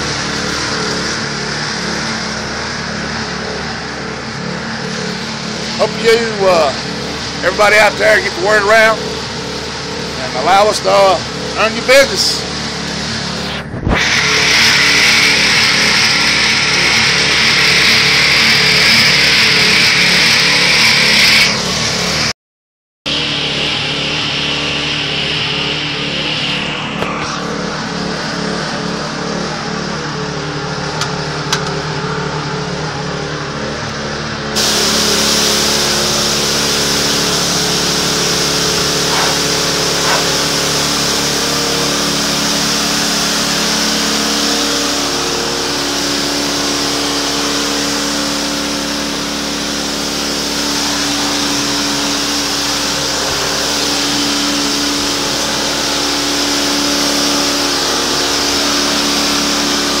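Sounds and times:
pressure washer motor drone: 0.0s - 22.3s, 23.1s - 60.0s
high-pressure spray on concrete: 4.9s - 21.7s, 34.6s - 60.0s.

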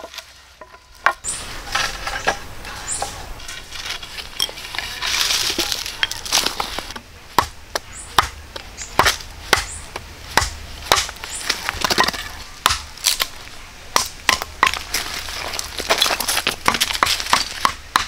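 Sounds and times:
wood being chopped: 5.5s - 18.0s.

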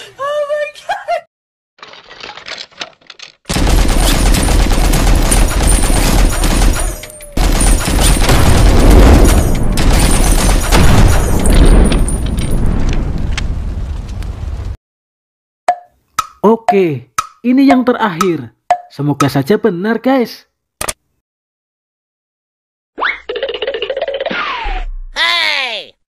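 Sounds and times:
machine-gun fire: 3.5s - 12.2s
explosion with rumble: 8.2s - 14.8s.

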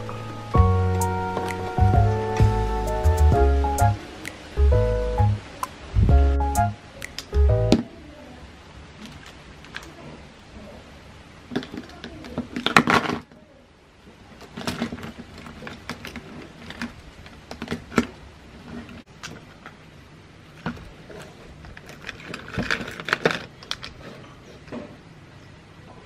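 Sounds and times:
pens rattling in plastic pen stand: 14.4s - 18.1s, 20.6s - 24.2s.

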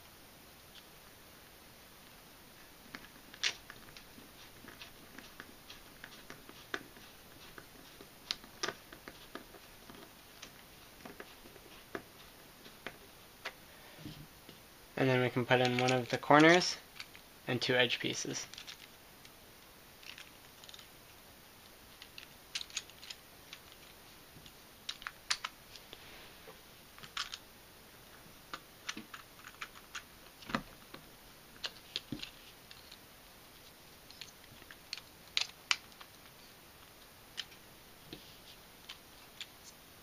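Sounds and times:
plastic puzzle pieces clicking: 15.6s - 17.2s, 22.0s - 23.9s, 24.9s - 25.5s, 27.0s - 27.4s, 34.1s - 36.2s.

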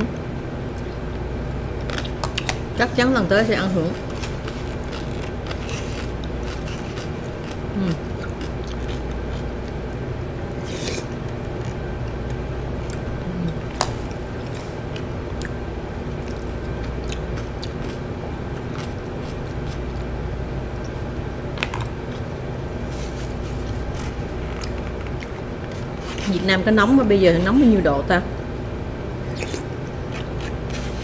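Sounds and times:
steady low hum: 0.0s - 31.0s
soft chewing: 3.9s - 10.0s, 10.6s - 20.1s, 21.6s - 26.5s, 28.5s - 31.0s.

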